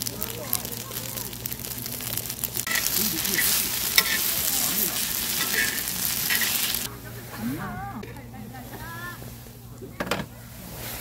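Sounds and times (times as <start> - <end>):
stir-fry sizzling in a pan: 0.0 - 9.6
utensil clicking against pan: 2.6 - 4.5.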